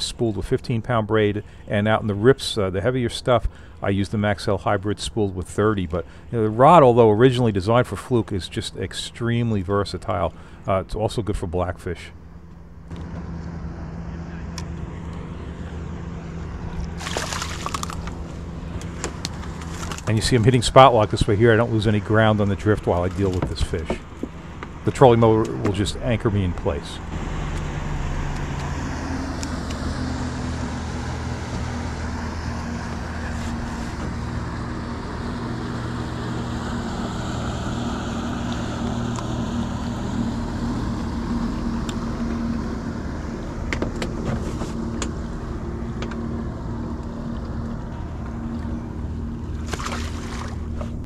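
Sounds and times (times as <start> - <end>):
handling clicks and knocks: 22.9 - 24.8.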